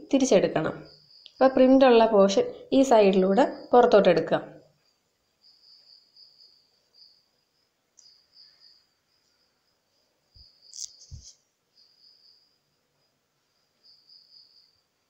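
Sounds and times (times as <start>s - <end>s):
high-pitched insect chirping: 0.0s - 4.0s, 4.6s - 15.0s
short rustle: 10.7s - 11.4s.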